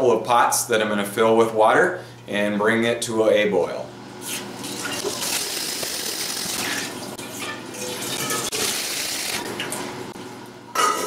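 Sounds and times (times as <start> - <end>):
tap water filling metal pot: 4.6 - 9.8.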